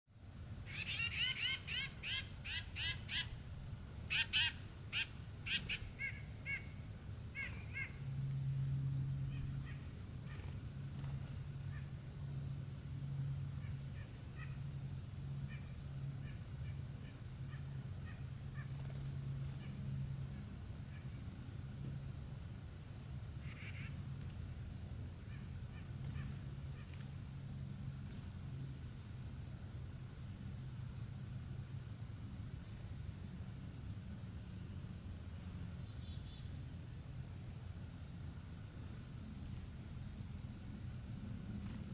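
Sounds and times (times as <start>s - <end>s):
songbirds calling: 0.1s - 8.1s, 9.2s - 12.0s, 13.5s - 21.7s, 23.4s - 24.3s, 25.1s - 27.3s, 32.6s - 32.9s, 33.8s - 37.6s
steady low hum: 0.1s - 41.9s.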